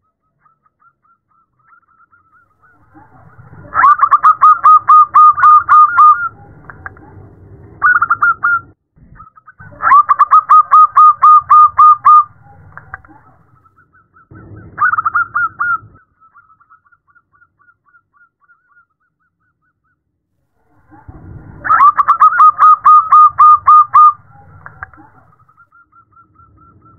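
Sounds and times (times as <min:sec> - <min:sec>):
dove cooing: 0:02.6 - 0:08.6, 0:09.6 - 0:13.6, 0:20.8 - 0:25.4.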